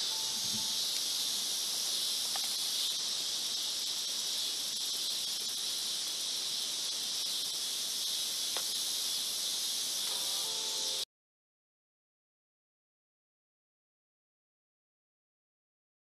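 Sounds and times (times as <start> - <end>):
insects droning: 0.0 - 11.1.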